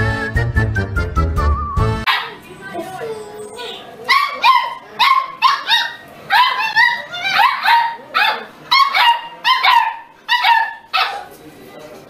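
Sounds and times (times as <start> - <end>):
dogs barking in high yaps: 2.1 - 2.4, 4.1 - 11.3.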